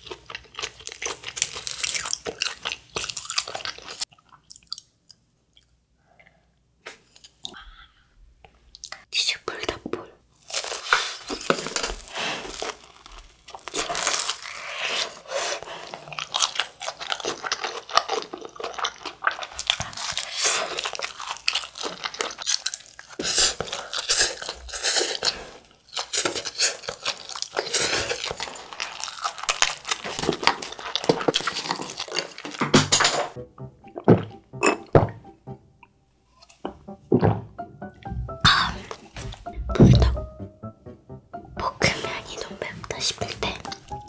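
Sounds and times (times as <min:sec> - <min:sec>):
chewing noodles with wet smacks: 0:00.0 - 0:05.8, 0:15.9 - 0:25.3.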